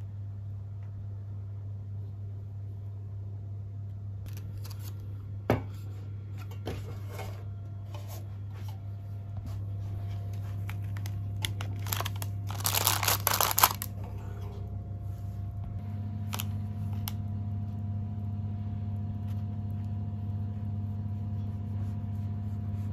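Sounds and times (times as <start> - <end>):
steady low hum: 0.0 - 22.9
parchment paper rustling: 4.3 - 5.0, 9.5 - 14.1.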